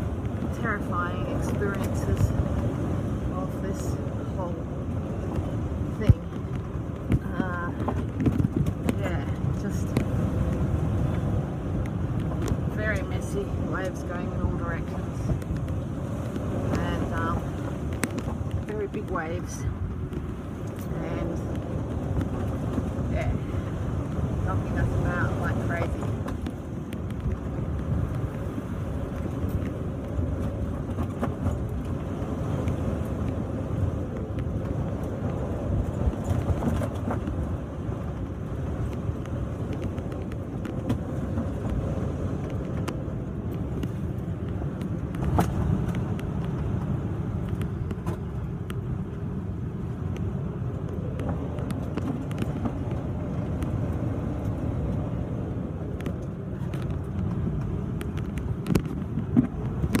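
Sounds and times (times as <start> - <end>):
rough sea breaking: 0.0 - 60.0
wind buffeting microphone: 0.0 - 60.0.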